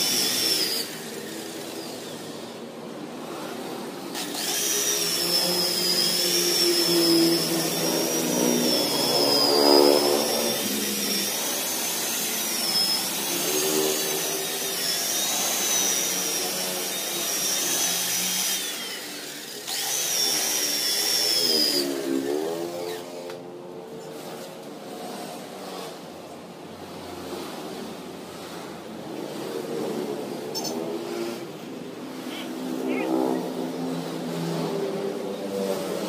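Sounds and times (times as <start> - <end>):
rotary polisher motor whine: 0.0 - 26.4, 27.0 - 36.0.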